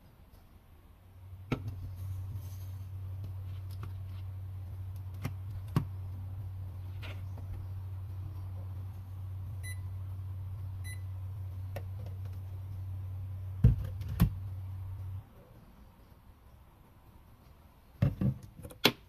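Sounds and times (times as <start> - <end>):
electric cooktop humming: 0.6 - 15.5
control panel beeps: 9.6 - 9.8, 10.8 - 11.1.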